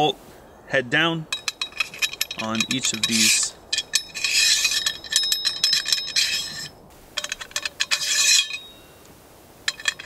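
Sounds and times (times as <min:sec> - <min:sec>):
metal bolts rattling in a rail: 0:01.3 - 0:08.8, 0:09.7 - 0:10.0
metallic clicks: 0:01.3 - 0:08.8.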